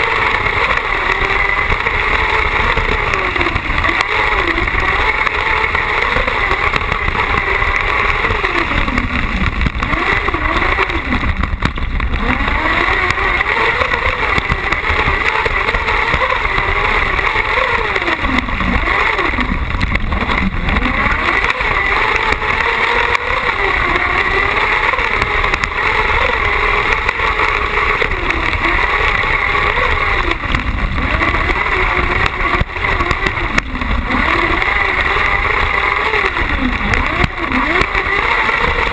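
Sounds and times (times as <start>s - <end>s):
buggy engine revving: 0.0s - 38.9s.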